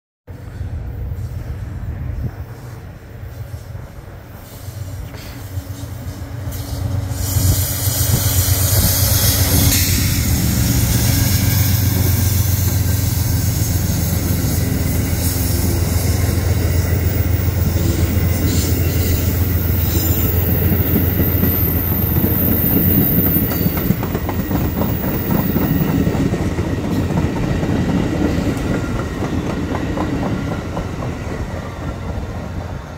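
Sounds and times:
diesel locomotive engines droning: 0.3s - 32.9s
train wheels clicking over rail joints: 4.4s - 32.8s
high wheel squeal: 6.6s - 24.0s.

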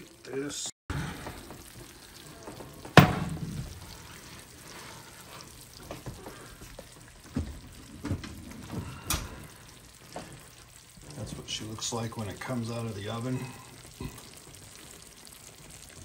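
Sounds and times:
sauce sizzling in a pan: 0.0s - 7.9s, 8.5s - 16.0s
loud metal clunk: 3.0s - 3.6s.

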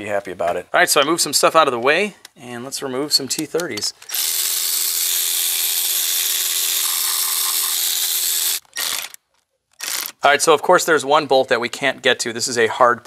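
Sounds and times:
cordless power tool running: 4.1s - 9.2s.

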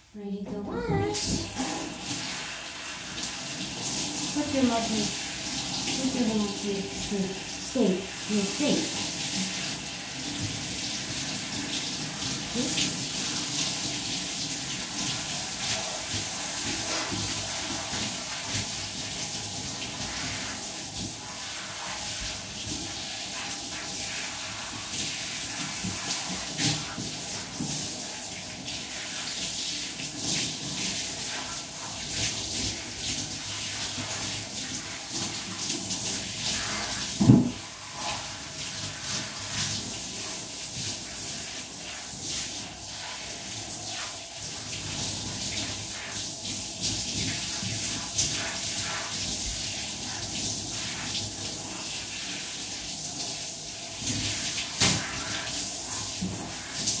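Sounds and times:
shower water spraying on dog: 0.0s - 57.0s
thump: 37.2s - 37.6s.

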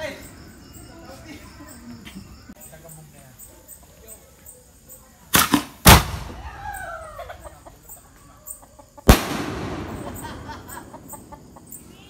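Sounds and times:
firework shells bursting: 5.3s - 6.5s, 9.0s - 12.0s.

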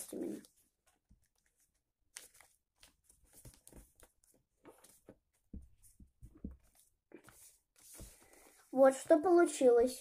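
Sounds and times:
paper being folded: 0.0s - 9.2s
soft paper rustles: 0.0s - 10.0s.

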